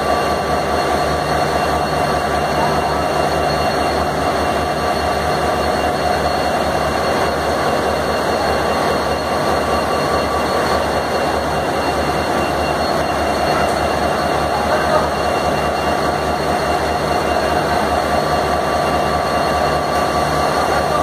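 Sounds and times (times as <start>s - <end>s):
diesel locomotive idling: 0.0s - 21.0s.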